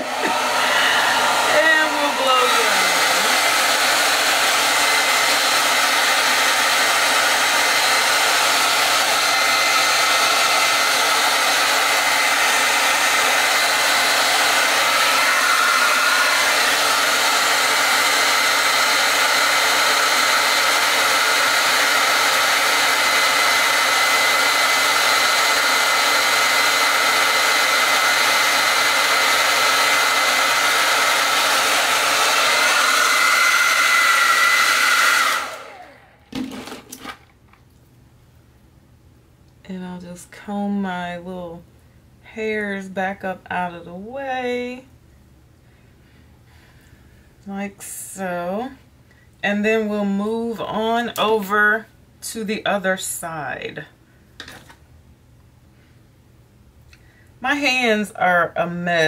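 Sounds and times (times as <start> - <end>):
hair dryer running: 0.0 - 37.2, 57.4 - 58.1.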